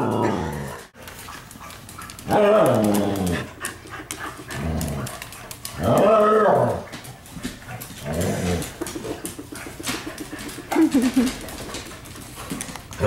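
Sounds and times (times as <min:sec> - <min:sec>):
dog playful growling calls: 0:02.2 - 0:03.7, 0:04.4 - 0:07.0, 0:07.8 - 0:11.6.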